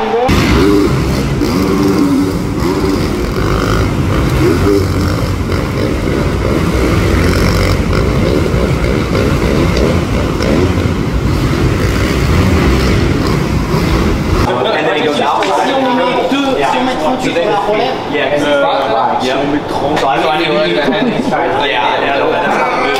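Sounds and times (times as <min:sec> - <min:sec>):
motorcycle engines droning: 0:00.1 - 0:14.6.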